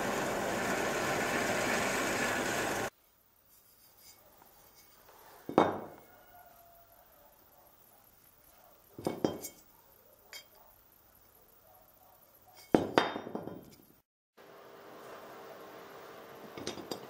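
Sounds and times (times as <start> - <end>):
steel parts knocking and clinking: 16.6 - 17.0.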